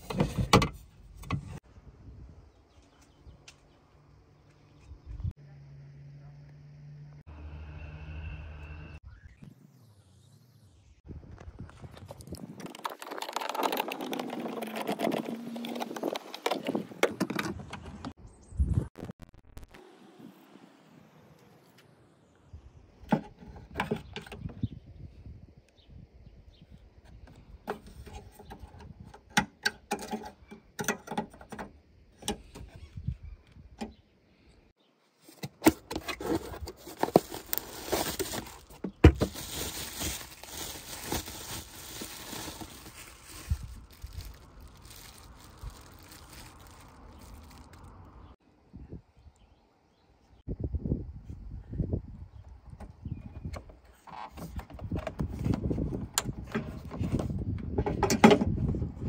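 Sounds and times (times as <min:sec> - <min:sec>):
cardboard box rustling: 0:35.4 - 0:46.8.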